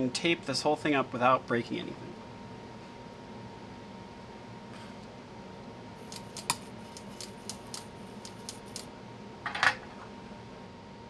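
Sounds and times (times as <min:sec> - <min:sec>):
small tools clicking: 0:06.0 - 0:08.9.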